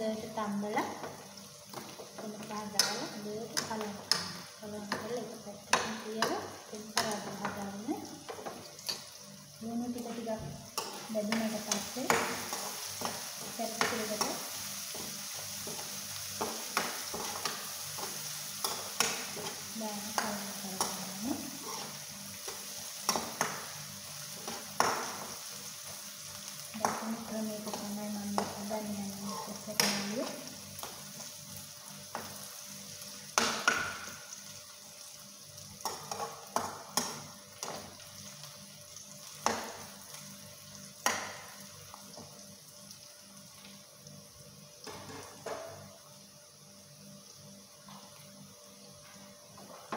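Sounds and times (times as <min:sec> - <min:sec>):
onions sizzling in hot oil: 0:00.0 - 0:49.9
metal spoon scraping a pan: 0:20.8 - 0:23.6, 0:29.2 - 0:29.6.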